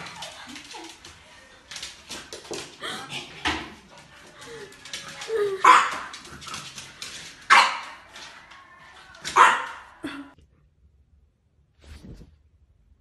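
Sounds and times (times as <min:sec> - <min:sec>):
puppy barking: 0:05.6 - 0:06.2, 0:07.5 - 0:08.0, 0:09.3 - 0:10.0.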